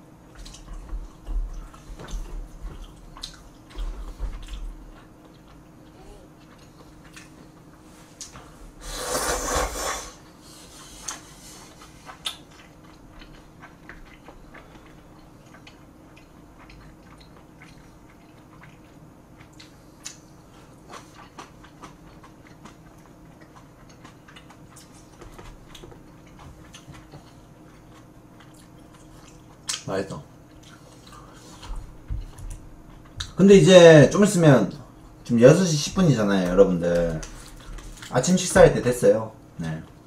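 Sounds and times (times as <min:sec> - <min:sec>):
slurping noodles: 0:08.8 - 0:11.2.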